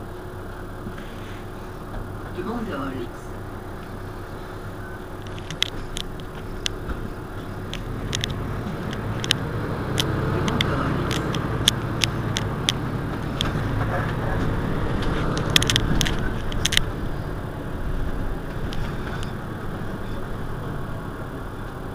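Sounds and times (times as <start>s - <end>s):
bus diesel engine running: 0.0s - 21.9s
sharp clicks and rattles: 3.4s - 20.7s.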